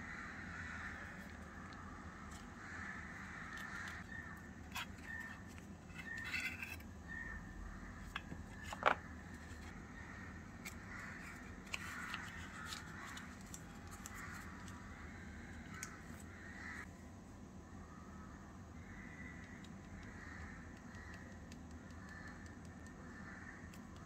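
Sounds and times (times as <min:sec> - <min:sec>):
foil and parchment crinkling: 0:11.7 - 0:14.8.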